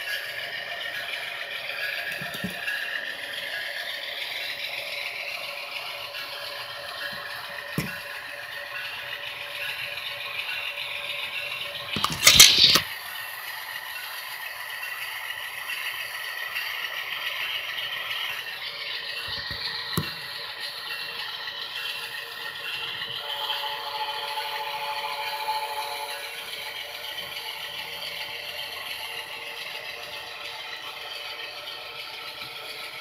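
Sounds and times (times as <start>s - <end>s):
model train rattling on track: 0.0s - 33.0s
sharp click: 12.0s - 12.9s.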